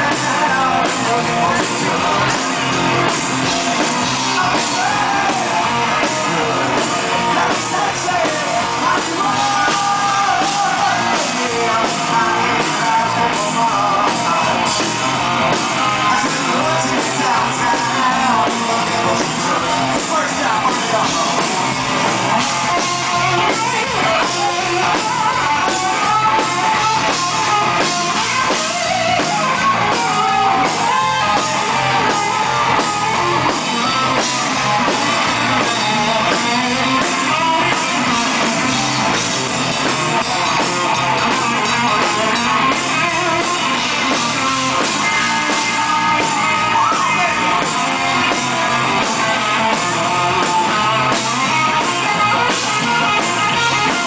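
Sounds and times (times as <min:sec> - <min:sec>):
drum kit: 0:00.0 - 0:54.0
electric guitar: 0:00.0 - 0:54.0
rock band playing: 0:00.0 - 0:54.0.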